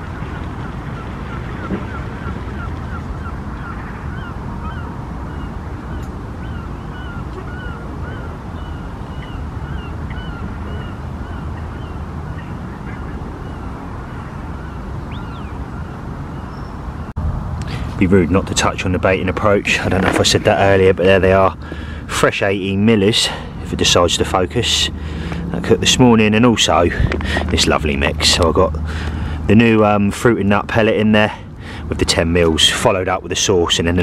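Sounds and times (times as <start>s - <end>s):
geese honking: 0.0s - 16.5s
steady low rumble: 0.0s - 32.6s.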